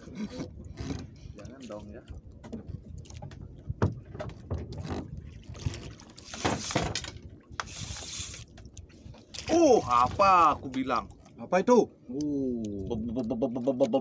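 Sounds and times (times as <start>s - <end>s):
water splashing and trickling: 0.0s - 14.0s
hissing splashes: 7.6s - 8.5s.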